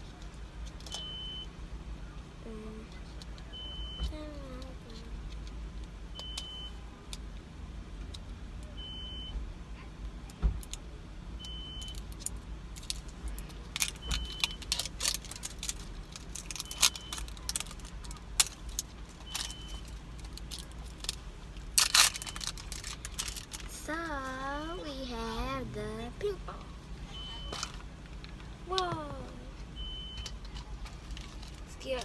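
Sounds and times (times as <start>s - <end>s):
low car rumble: 0.0s - 32.0s
plastic wrapper rustling: 12.8s - 24.4s
short high beep: 27.1s - 27.6s.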